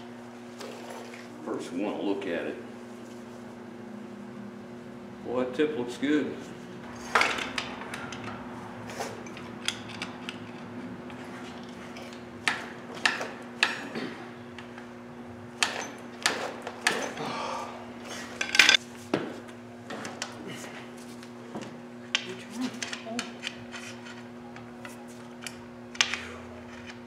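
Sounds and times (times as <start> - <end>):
low hum: 2.6 - 12.2.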